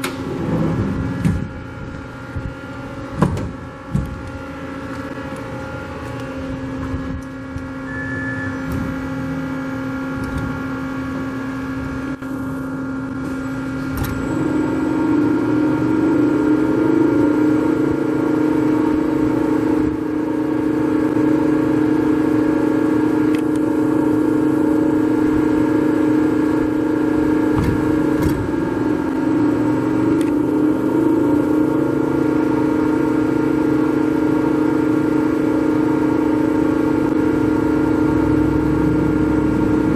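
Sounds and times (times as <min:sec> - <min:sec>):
lathe motor hum and whine: 0:00.0 - 0:39.9.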